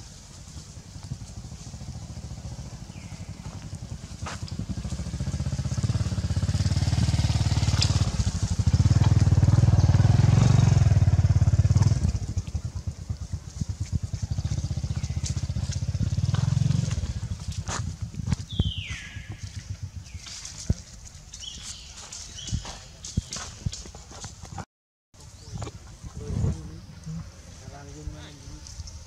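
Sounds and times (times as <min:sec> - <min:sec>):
engine droning: 0:00.0 - 0:22.5.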